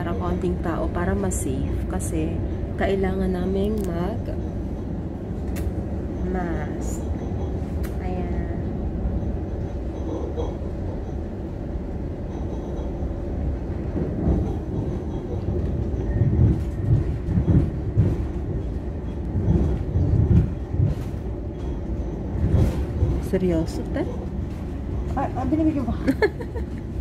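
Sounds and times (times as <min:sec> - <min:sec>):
train carriage rumble: 0:00.0 - 0:27.0
low bumps: 0:13.8 - 0:27.0.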